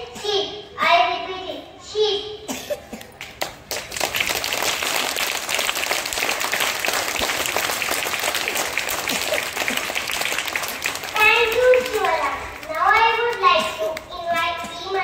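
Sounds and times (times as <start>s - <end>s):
children clapping: 3.0s - 14.1s.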